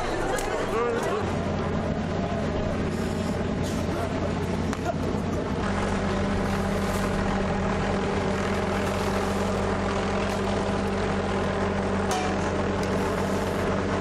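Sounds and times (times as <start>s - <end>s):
large engine droning: 0.0s - 14.0s.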